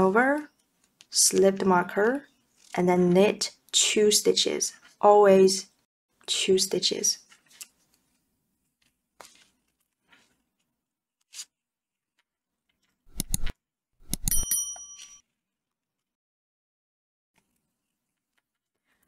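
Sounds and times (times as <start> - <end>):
short bright bell ding: 14.2 - 15.2.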